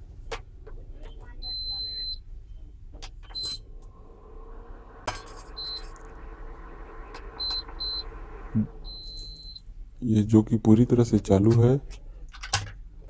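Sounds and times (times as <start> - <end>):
cooktop short high beeps: 5.4 - 6.0, 7.4 - 9.6.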